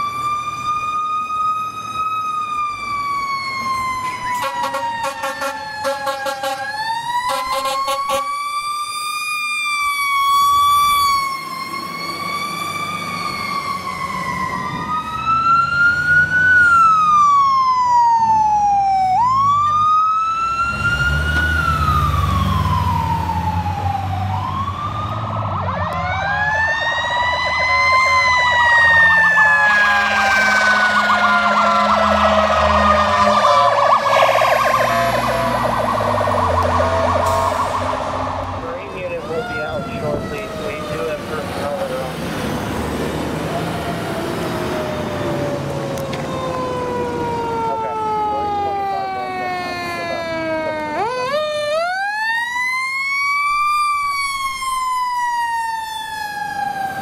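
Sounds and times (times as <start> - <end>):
fire truck siren wailing: 0.0 - 57.0
heavy truck engine rumbling: 20.3 - 51.0.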